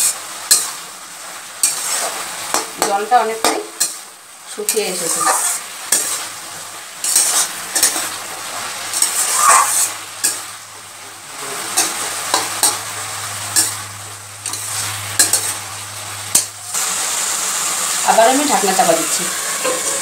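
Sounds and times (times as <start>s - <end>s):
metal spatula scraping a pan: 0.0s - 0.8s, 1.6s - 10.5s, 11.6s - 15.7s, 19.6s - 20.0s
frying sizzle: 0.0s - 20.0s.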